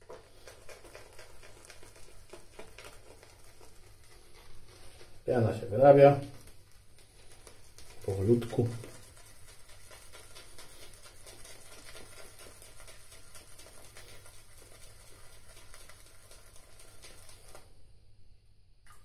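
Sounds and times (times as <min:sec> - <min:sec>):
shaving brush swirling in soap lather: 0:00.0 - 0:17.8.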